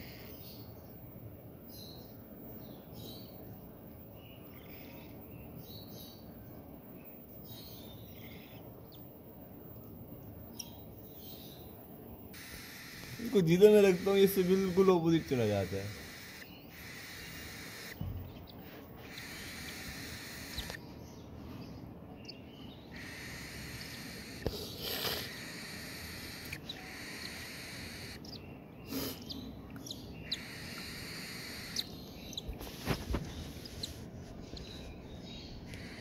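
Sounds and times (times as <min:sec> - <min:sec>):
chicks cheeping: 0:12.4 - 0:20.9, 0:21.8 - 0:36.0.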